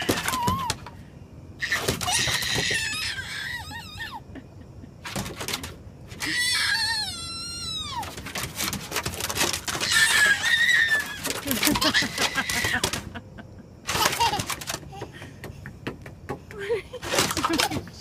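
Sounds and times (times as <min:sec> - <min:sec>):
toddler squealing and shrieking: 0:00.0 - 0:00.8, 0:01.6 - 0:04.2, 0:06.2 - 0:08.3, 0:09.7 - 0:13.0
footsteps on wooden deck: 0:14.2 - 0:18.0.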